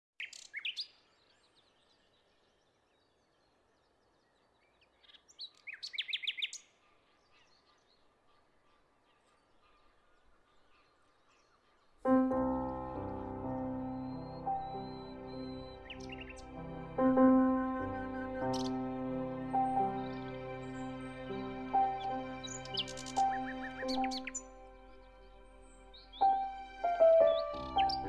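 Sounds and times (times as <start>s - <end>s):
faint bird chirps: 0.2s - 28.0s
music: 12.0s - 28.0s
bird whistling descending notes: 13.1s - 28.0s.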